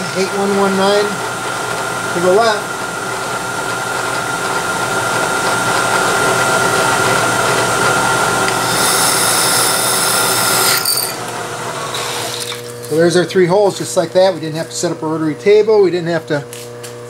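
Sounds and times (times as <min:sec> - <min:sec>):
milling machine spindle whine: 0:00.0 - 0:16.5
drill cutting metal with hiss: 0:06.6 - 0:12.8.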